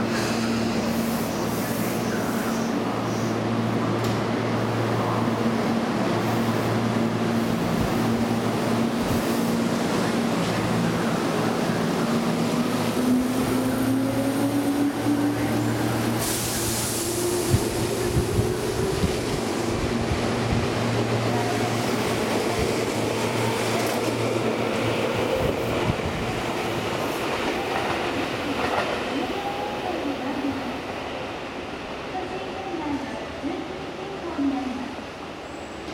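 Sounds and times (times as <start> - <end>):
rumble of rolling train cars: 0.0 - 35.9
burst of hiss: 16.1 - 17.6.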